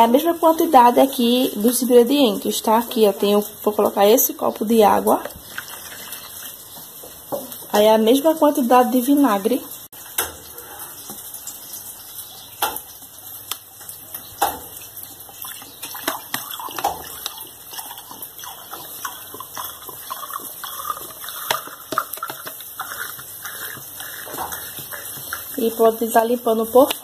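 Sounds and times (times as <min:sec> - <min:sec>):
liquid glugging from bottle: 0:15.4 - 0:24.6.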